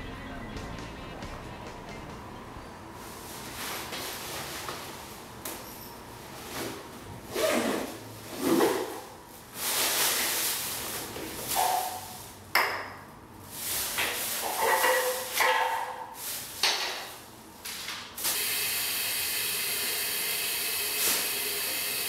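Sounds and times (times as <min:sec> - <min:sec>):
plastic bag rustling: 0:03.0 - 0:12.4, 0:13.4 - 0:18.4.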